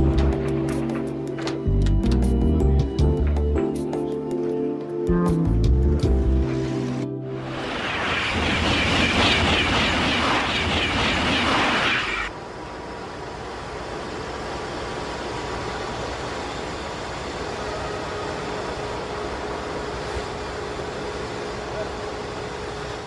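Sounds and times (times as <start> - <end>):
freight train rolling past: 6.5 - 23.0.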